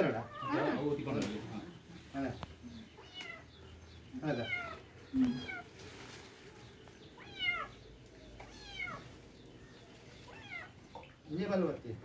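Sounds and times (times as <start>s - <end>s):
kitten meowing: 8.4s - 9.0s.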